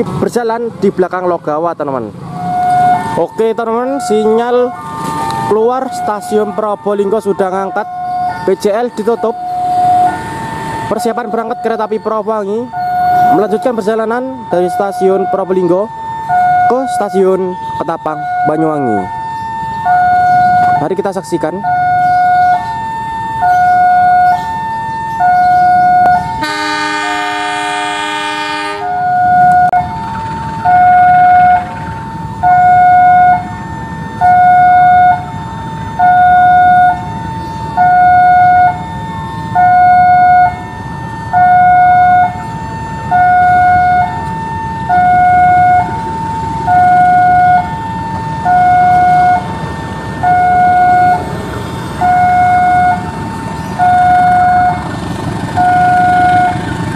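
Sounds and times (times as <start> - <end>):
diesel engine rumble: 0.0 - 56.9
level crossing alarm two-tone: 2.2 - 56.9
locomotive horn: 25.4 - 30.0, 30.7 - 31.8, 32.4 - 56.8.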